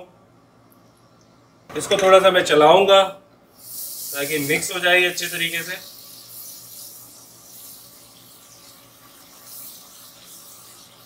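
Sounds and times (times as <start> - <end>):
onions sizzling in hot oil: 3.6 - 11.0.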